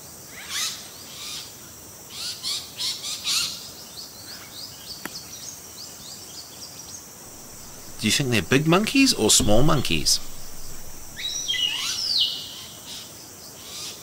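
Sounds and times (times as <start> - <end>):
steady hiss: 7.4 - 11.9.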